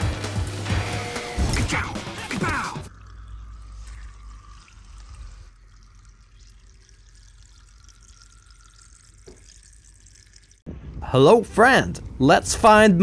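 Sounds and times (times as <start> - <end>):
faint trickling water: 2.8 - 10.7.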